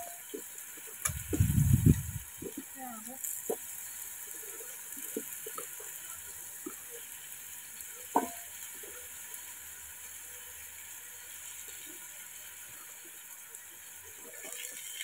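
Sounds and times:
faint steady hiss: 0.0s - 15.0s
spoon knocking on pot: 8.2s - 8.4s.

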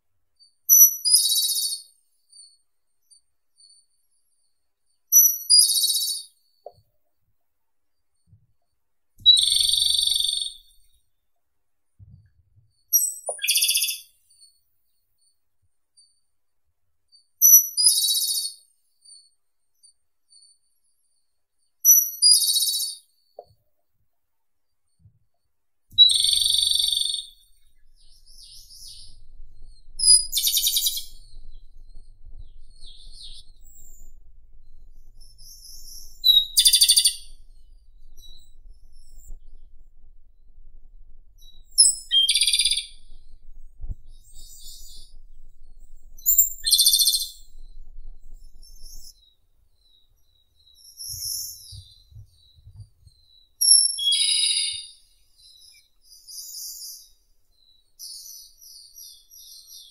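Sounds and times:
faint bird chirps: 0.0s - 59.9s
bird singing with trill: 0.7s - 1.8s, 9.3s - 10.8s, 12.9s - 14.2s, 17.4s - 18.6s, 26.0s - 40.1s, 41.4s - 59.9s.

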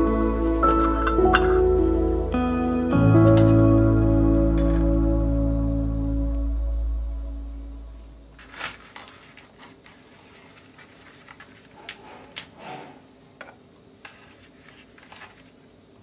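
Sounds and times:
rustling: 8.3s - 13.0s, 14.0s - 15.8s.

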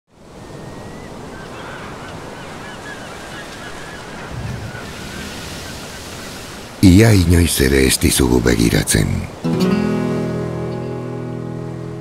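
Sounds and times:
birds chirping: 0.4s - 8.7s
surf washing over rocks: 1.2s - 11.2s.

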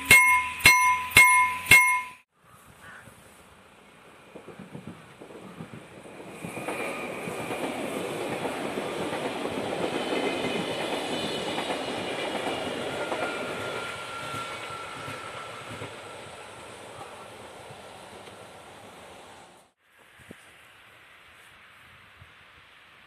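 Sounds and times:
train wheels rumbling on track: 3.5s - 19.8s.

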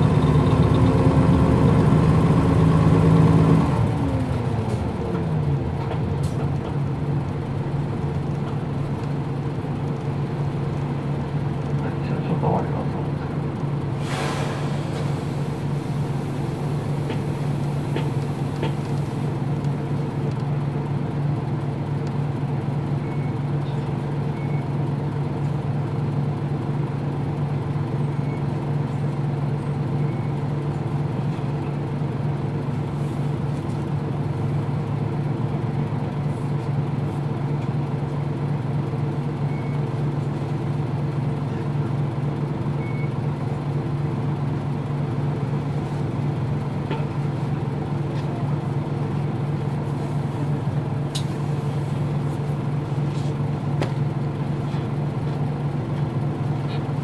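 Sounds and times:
bus diesel engine idling: 0.0s - 57.0s
short air hiss: 14.0s - 15.1s.

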